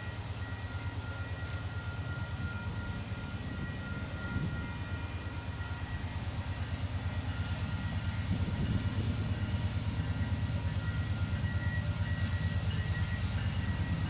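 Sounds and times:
diesel locomotive engine drone: 0.0s - 14.0s.

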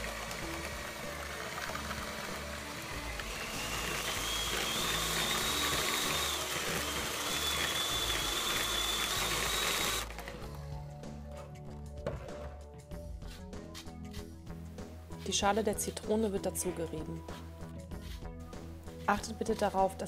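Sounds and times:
electric hand mixer whining: 0.0s - 10.6s.

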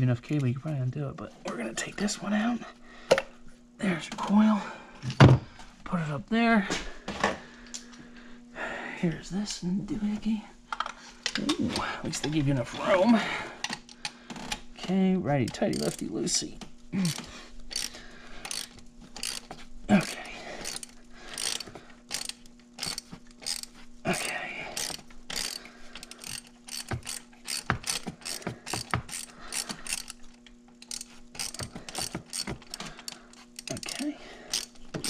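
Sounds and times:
socket ratchet clicking: 15.4s - 16.2s, 17.1s - 35.0s.

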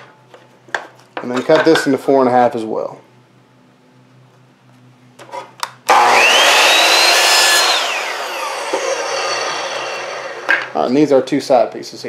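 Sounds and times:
miter saw cutting wood: 5.9s - 10.8s.

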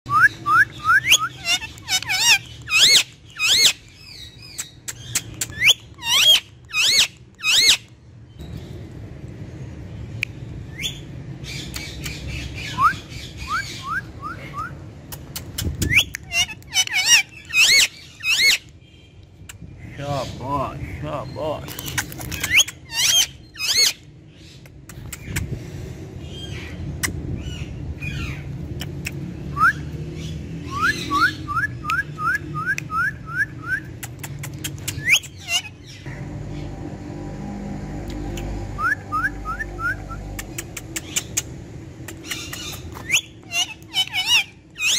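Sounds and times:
low background rumble: 0.1s - 44.9s
parrot squawking: 0.5s - 7.9s, 15.4s - 18.7s, 22.3s - 24.0s, 34.5s - 36.6s, 38.2s - 44.9s
steady low hum: 33.8s - 44.8s.

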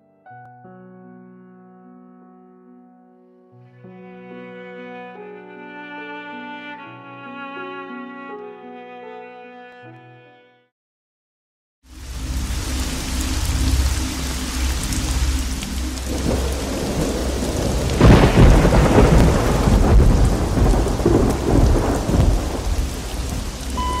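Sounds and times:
steady rain: 11.9s - 24.0s
thunder rumbling: 12.1s - 24.0s
thunder crack: 16.1s - 24.0s.

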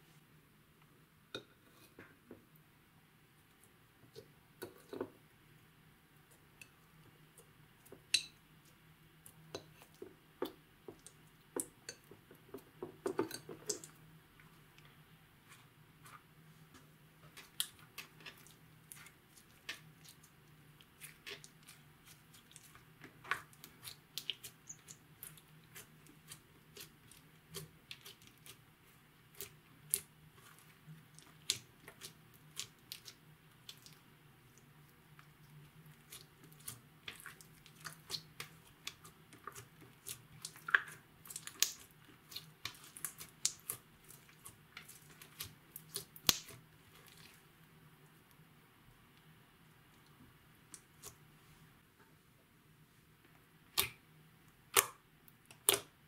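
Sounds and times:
slime squelching and clicking: 17.3s - 47.4s, 53.6s - 54.0s, 54.7s - 56.0s.

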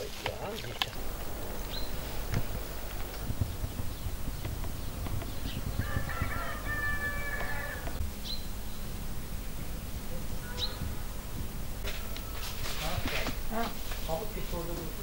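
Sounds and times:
rooster crowing: 5.6s - 8.0s, 11.8s - 12.7s.

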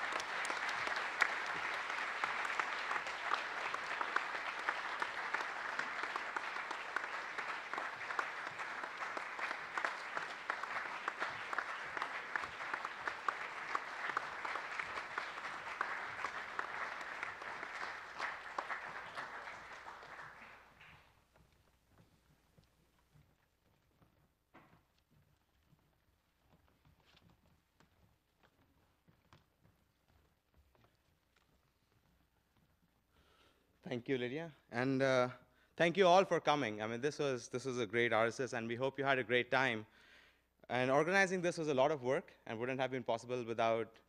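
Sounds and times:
audience applauding: 0.0s - 21.2s.

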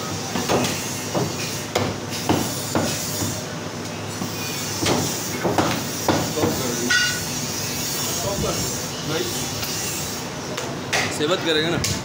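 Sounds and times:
cleaver chopping on wooden block: 4.8s - 6.6s.

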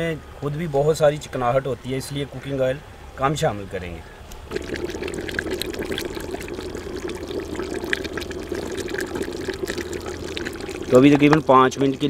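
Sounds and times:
chicken sizzling in oil: 4.5s - 12.0s.

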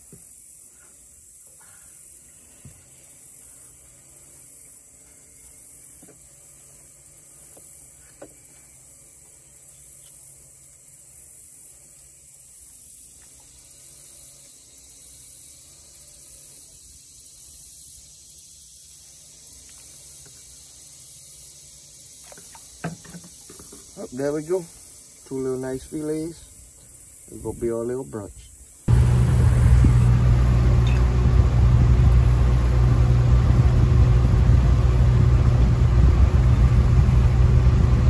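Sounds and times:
high hiss: 0.0s - 38.0s
low outdoor rumble: 28.9s - 38.0s.

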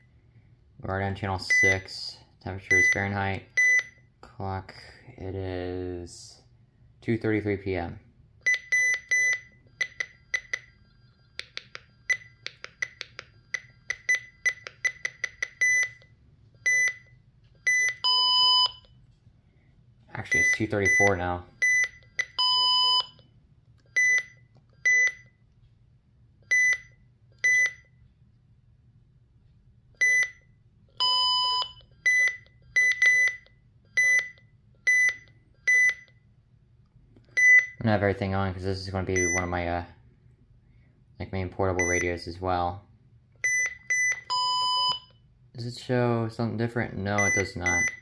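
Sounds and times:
radio key beeps: 47.2s - 48.0s.

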